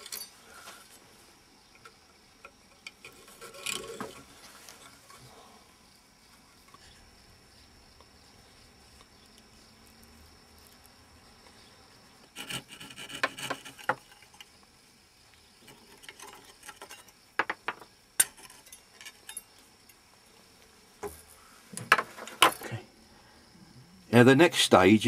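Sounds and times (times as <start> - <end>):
hand saw rasping through wood: 12.4 - 13.8.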